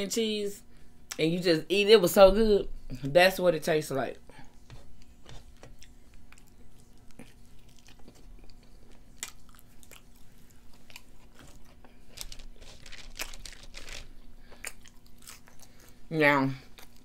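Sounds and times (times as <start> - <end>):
wet chewing: 5.0 - 17.0.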